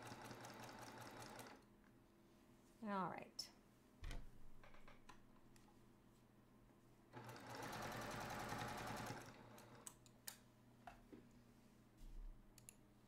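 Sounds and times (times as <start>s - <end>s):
sewing machine running: 0.0s - 1.6s, 7.2s - 9.8s.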